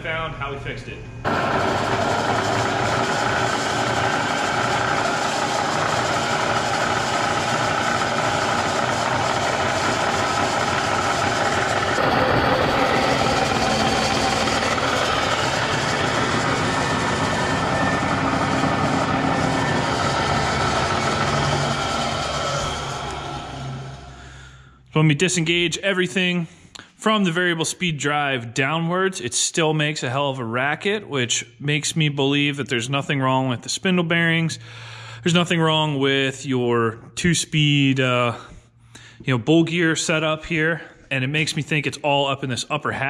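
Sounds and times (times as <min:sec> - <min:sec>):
milling machine rattling and rubbing: 0:01.3 - 0:24.0.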